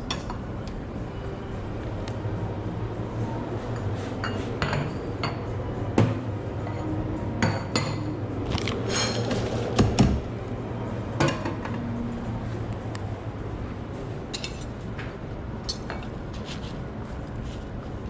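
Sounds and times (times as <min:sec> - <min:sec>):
steady low hum: 0:00.0 - 0:18.0
ceramic cups and utensils clinking: 0:03.7 - 0:09.9, 0:14.3 - 0:14.8.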